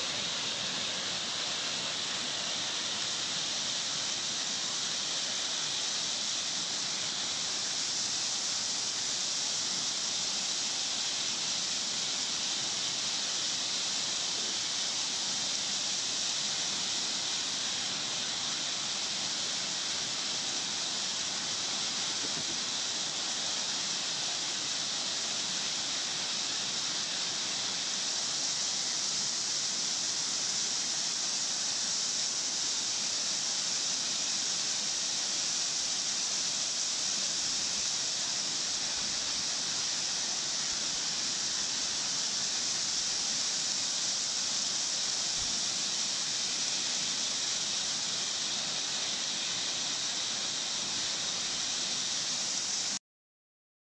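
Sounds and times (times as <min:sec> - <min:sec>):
waterfall rushing over rocks: 0:00.0 - 0:53.0.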